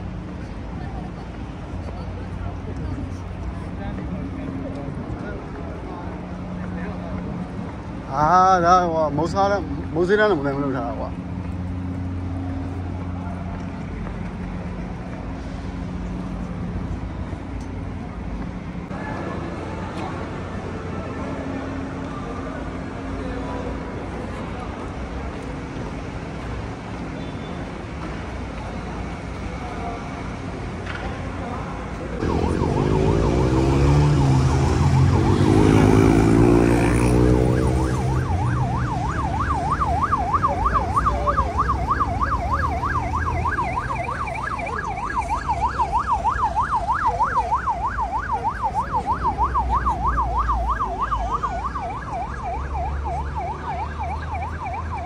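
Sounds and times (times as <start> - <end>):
traffic rumble: 0.0 - 55.0
loud vehicle engine: 2.4 - 55.0
ambulance siren yelping: 32.2 - 55.0.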